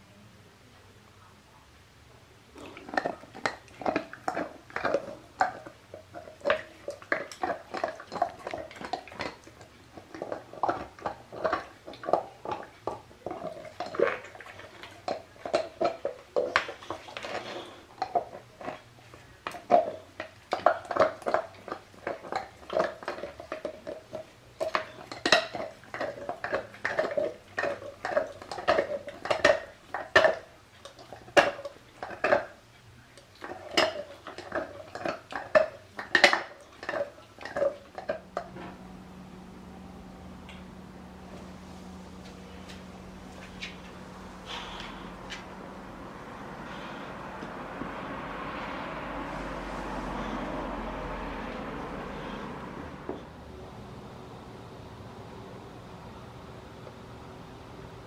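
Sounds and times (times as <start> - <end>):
dog gnawing a hard chew: 2.6 - 38.6.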